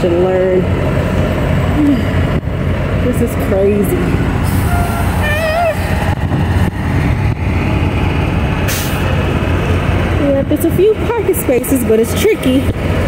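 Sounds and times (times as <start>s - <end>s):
diesel truck engines rumbling: 0.0s - 13.0s
air brake hiss: 8.7s - 9.0s.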